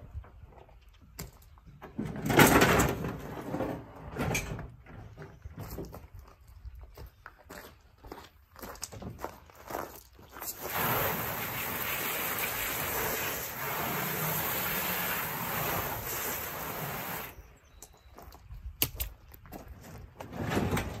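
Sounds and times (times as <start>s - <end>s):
hose spraying water into plastic basin: 10.4s - 17.4s.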